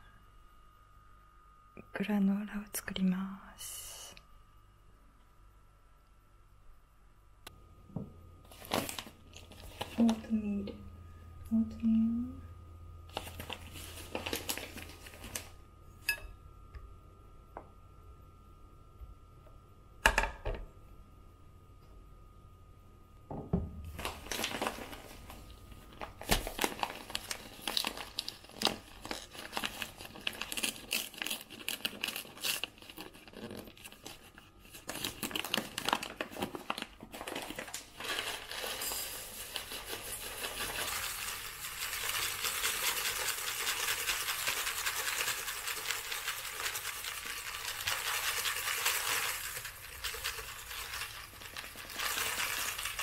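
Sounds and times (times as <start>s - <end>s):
plastic packaging crinkling: 8.4s - 10.4s, 13.1s - 15.6s, 23.9s - 53.0s
dry rustle of oats: 13.1s - 15.5s, 37.1s - 53.0s.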